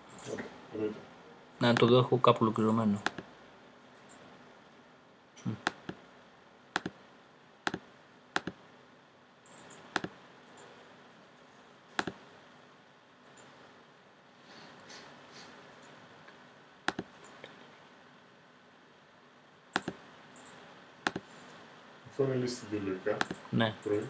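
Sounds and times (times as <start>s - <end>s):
computer mouse clicking: 3.0s - 3.3s, 4.0s - 4.3s, 5.6s - 6.0s, 6.8s - 7.0s, 7.7s - 8.6s, 9.4s - 10.7s, 11.9s - 12.2s, 16.9s - 17.6s, 19.7s - 21.3s, 23.2s - 24.0s.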